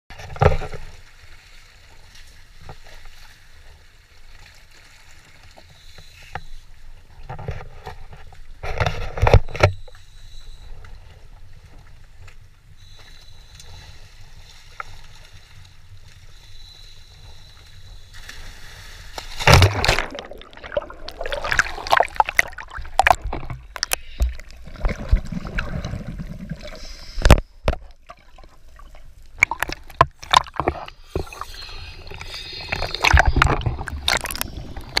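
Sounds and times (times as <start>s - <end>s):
water sloshing and gurgling: 0.1s - 35.0s
wind: 0.1s - 35.0s
diver splashing into water: 19.2s - 23.2s.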